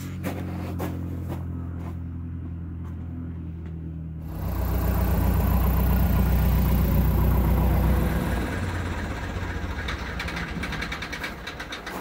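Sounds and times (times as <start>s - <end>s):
airplane piston engine running: 4.2s - 12.0s.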